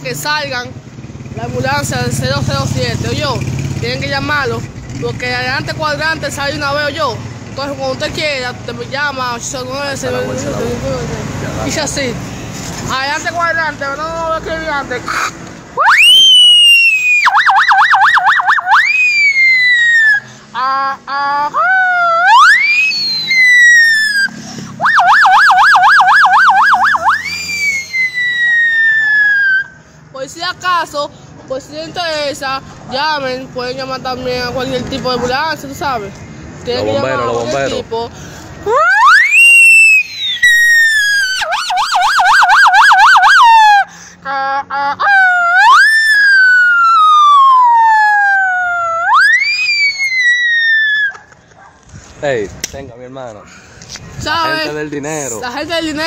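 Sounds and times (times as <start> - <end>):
man imitating sirens with voice: 15.8 - 29.7, 38.7 - 43.9, 44.6 - 51.2.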